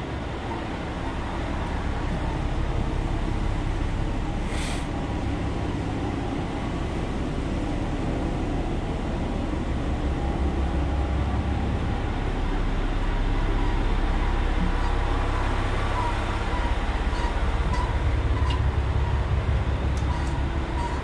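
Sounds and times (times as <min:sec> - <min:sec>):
diesel engine idling: 0:00.0 - 0:21.0.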